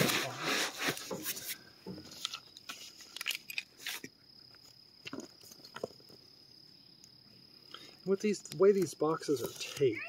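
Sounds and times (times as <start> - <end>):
insect trill: 0.2 - 10.0.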